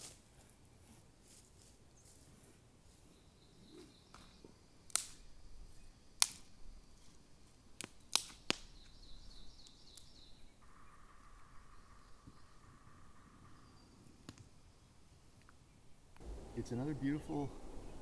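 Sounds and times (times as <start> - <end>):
dry sticks snapping: 4.9 - 5.2, 6.2 - 6.5, 7.8 - 9.0.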